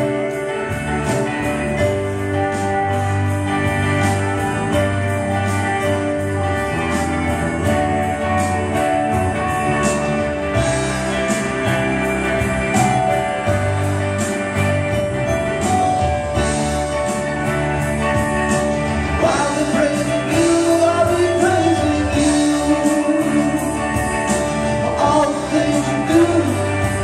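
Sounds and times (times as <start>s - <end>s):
electric guitar: 0.0s - 27.0s
praise band playing: 0.0s - 27.0s
strummed acoustic guitars: 0.0s - 27.0s
man singing: 19.2s - 27.0s.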